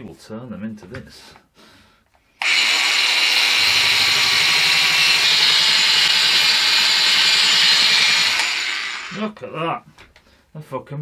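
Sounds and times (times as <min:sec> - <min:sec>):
belt sander high hiss: 0:02.4 - 0:09.2.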